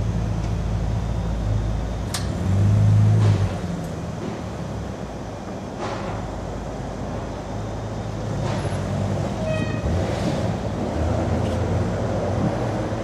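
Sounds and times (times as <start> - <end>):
short high horn toot: 9.4 - 10.0.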